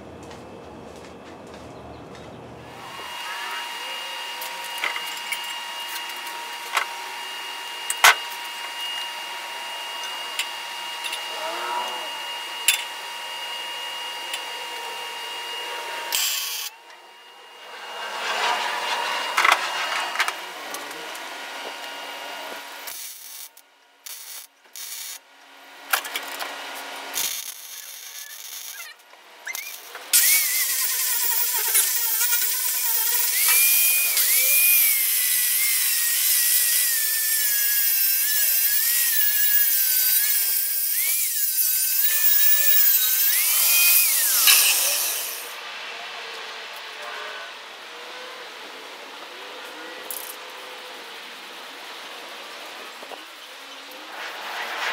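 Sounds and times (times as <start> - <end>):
angle grinder grinding metal: 2.7 - 25.2, 25.9 - 45.8.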